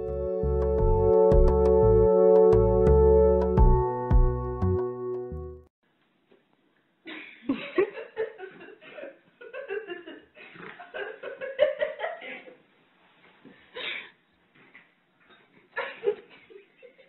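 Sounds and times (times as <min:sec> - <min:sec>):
person laughing: 0:07.1 - 0:12.5, 0:15.8 - 0:17.0.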